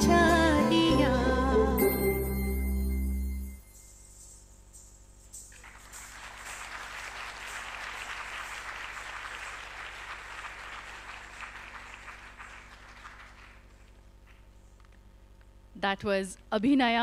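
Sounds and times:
audience applauding: 5.6s - 14.5s.

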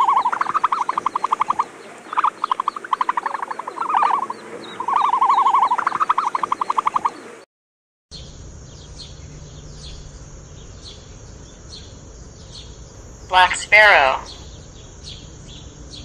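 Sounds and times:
animal calling in pulsed trills: 0.0s - 7.2s.

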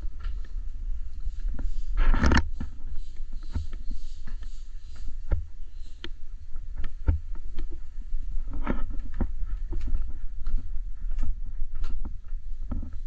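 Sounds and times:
camera handling rumble: 1.5s - 2.8s, 6.0s - 13.0s.

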